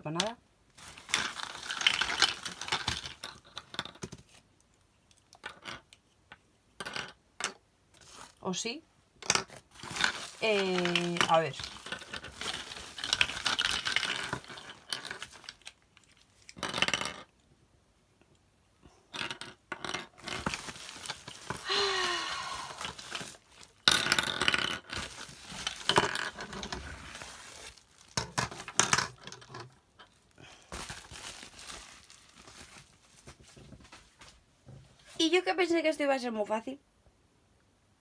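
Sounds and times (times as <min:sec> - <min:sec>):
plastic pipes clicking and clattering: 0:00.0 - 0:04.4, 0:05.1 - 0:08.2, 0:09.2 - 0:17.3, 0:19.1 - 0:22.0, 0:22.8 - 0:34.0
bubble-wrap bag rustling: 0:00.7 - 0:03.9, 0:09.6 - 0:15.8, 0:20.1 - 0:34.4.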